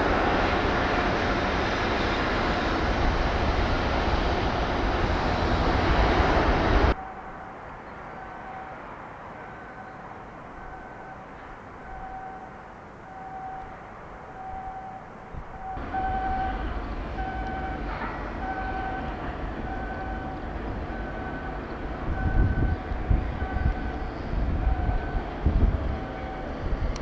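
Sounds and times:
two-tone warning beeps: 10.6 - 13.8, 14.4 - 25.3
low machinery rumble: 14.6 - 27.0.

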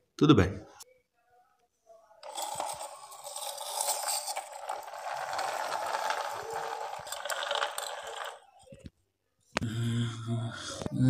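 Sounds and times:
toy truck wheels rolling on floor: 2.2 - 8.9.

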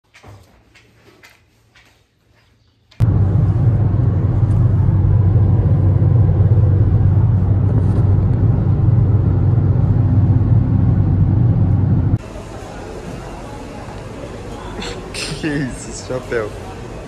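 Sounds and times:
car engine: 3.0 - 12.2.

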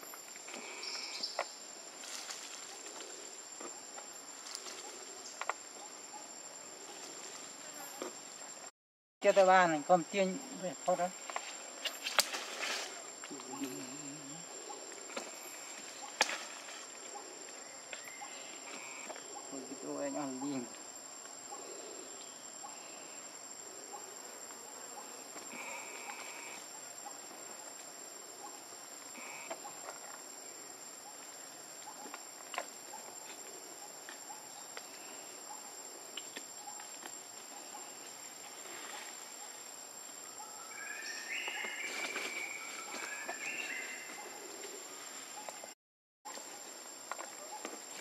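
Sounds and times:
high insect drone: 0.0 - 48.0.

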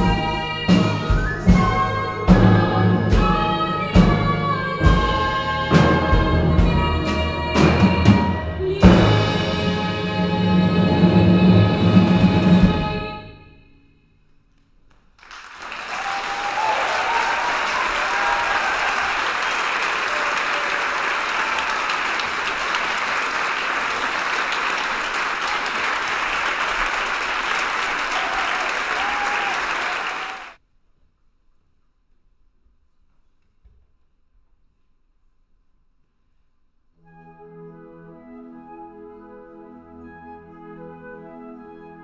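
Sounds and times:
flute orchestra with singer: 0.0 - 13.5, 37.0 - 42.0
audience applauding: 15.2 - 30.6.

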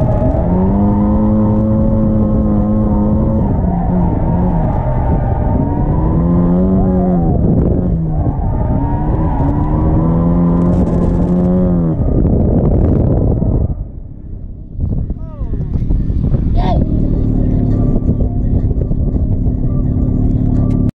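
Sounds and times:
car engine revving hard: 0.0 - 13.4.

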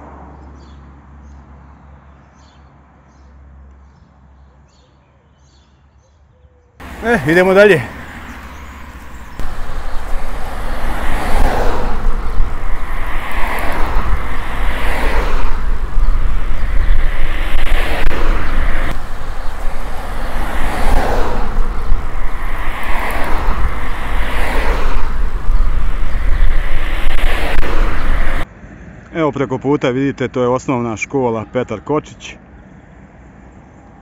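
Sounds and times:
wind buffeting microphone: 6.8 - 28.4.

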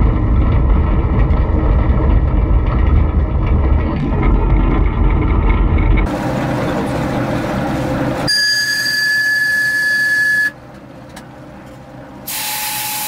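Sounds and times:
diesel locomotive rumbling: 0.0 - 13.0
high-pitched whistle blast: 8.3 - 10.6.

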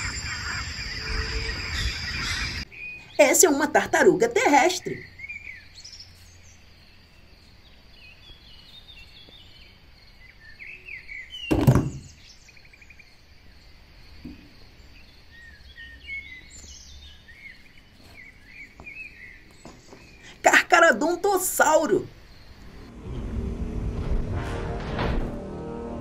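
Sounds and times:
birds chirping: 0.0 - 22.9
toy landing in cardboard box: 11.5 - 12.1.

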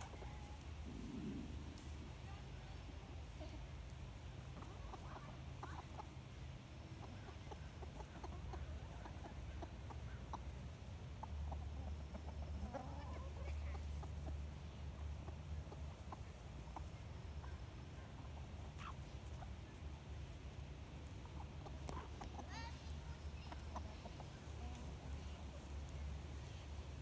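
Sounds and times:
hens clucking: 0.0 - 27.0
low rumble: 0.7 - 2.2.

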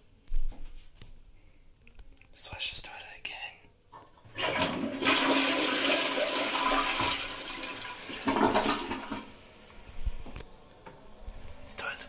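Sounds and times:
toilet flushing: 4.0 - 9.7.

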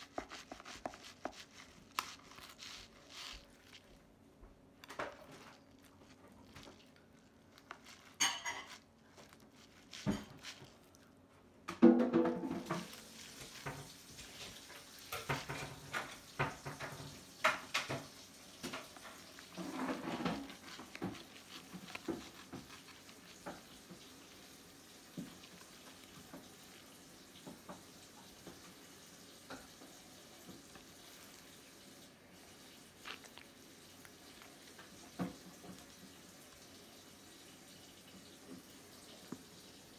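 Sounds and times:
knife scraping fish flesh: 0.0 - 3.9, 7.4 - 11.0, 18.9 - 23.8.

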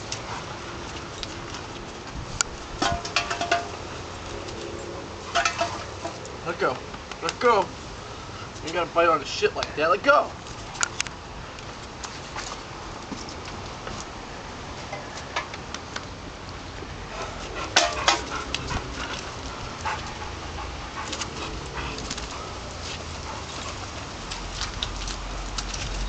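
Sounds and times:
dog sounds: 17.1 - 26.0
dogs scuffling on gravel: 17.2 - 26.0.

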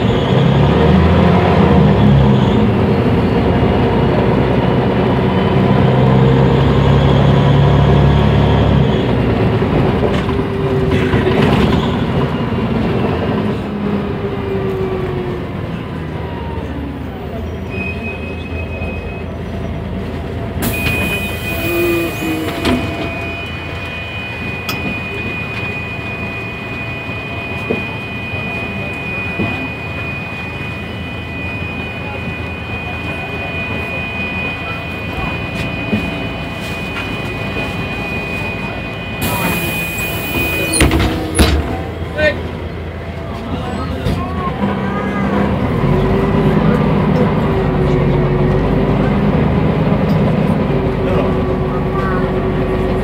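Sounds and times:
bus diesel engine: 0.0 - 53.0
steady high beep: 20.6 - 42.4
falling whine: 20.6 - 43.4.

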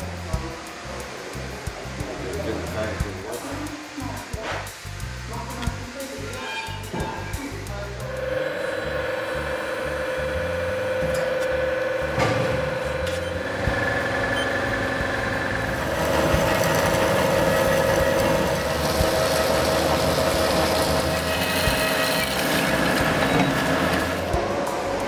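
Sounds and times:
bandsaw cutting metal: 8.0 - 24.4.

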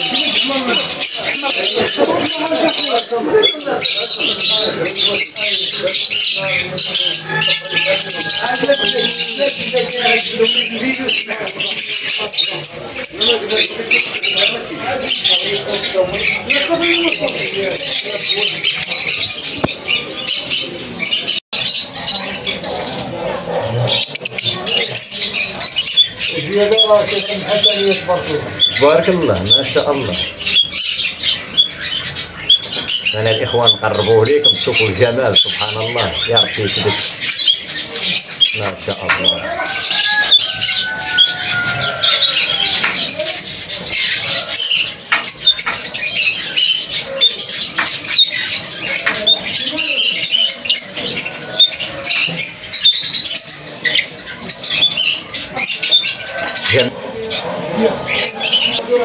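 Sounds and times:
parrots chirping and squawking: 0.0 - 59.0.

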